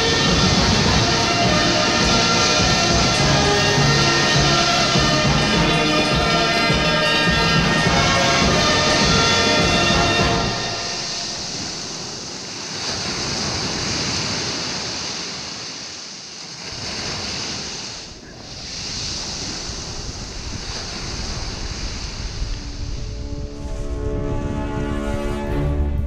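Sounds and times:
small waves breaking on shore: 0:00.0 - 0:23.7
wind on microphone: 0:00.0 - 0:26.0.

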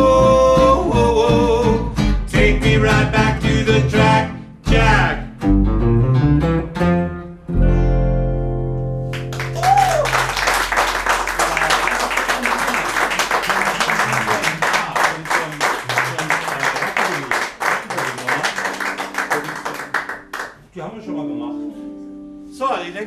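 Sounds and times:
strummed guitar: 0:00.0 - 0:09.6, 0:18.4 - 0:22.7
upright bass: 0:00.0 - 0:14.6
electric guitar: 0:03.4 - 0:12.5.

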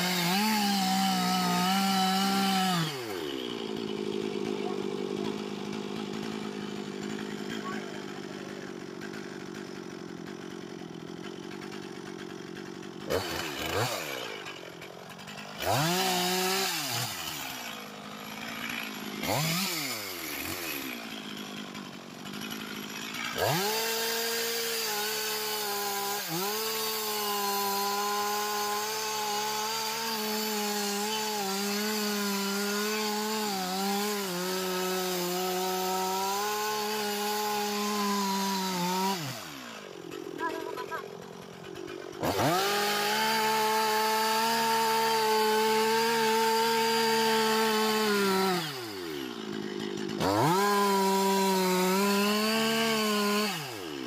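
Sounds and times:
chainsaw revving and cutting wood: 0:00.0 - 0:54.0.

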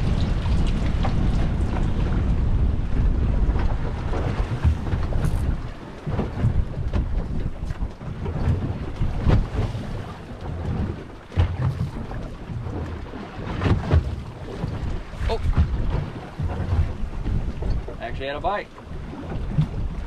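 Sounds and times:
heavy low rumble: 0:00.0 - 0:09.6
water slapping against boat: 0:00.0 - 0:20.0
wind buffeting microphone: 0:00.0 - 0:20.0.

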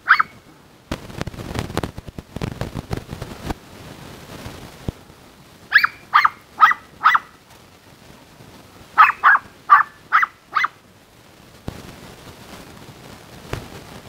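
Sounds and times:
small dog yapping: 0:00.0 - 0:00.4, 0:05.7 - 0:07.4, 0:09.0 - 0:10.8.

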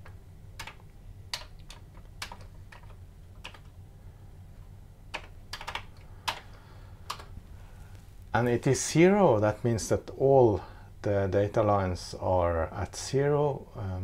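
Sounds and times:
keyboard key presses: 0:00.0 - 0:03.7, 0:05.1 - 0:06.5, 0:07.1 - 0:07.3.

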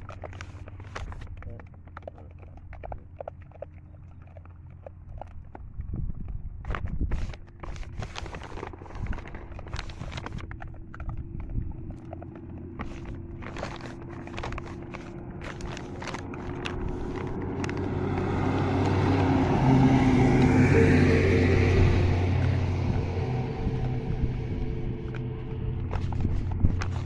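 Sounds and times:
clicks and scuffs on gravel: 0:06.7 - 0:11.0, 0:12.0 - 0:20.6, 0:24.8 - 0:27.0
truck engine running: 0:09.6 - 0:27.0.

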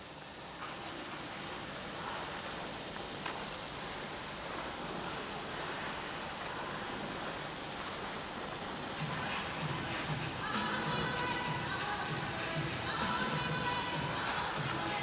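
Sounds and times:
ice rink background noise: 0:00.0 - 0:15.0.

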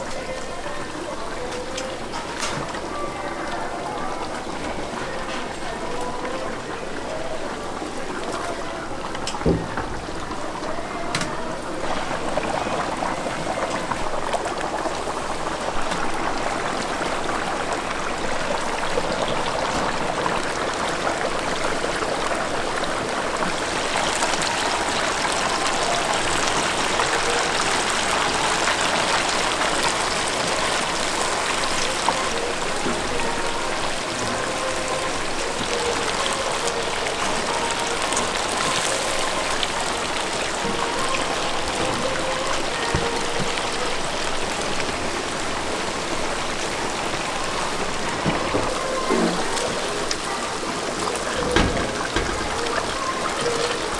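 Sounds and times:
chicken sizzling in hot oil: 0:00.0 - 0:53.9.

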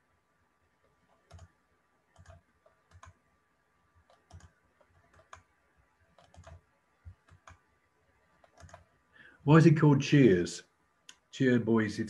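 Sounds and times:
computer mouse clicks: 0:01.0 - 0:01.5, 0:02.1 - 0:03.2, 0:04.0 - 0:05.5, 0:06.1 - 0:07.7, 0:08.3 - 0:08.9.

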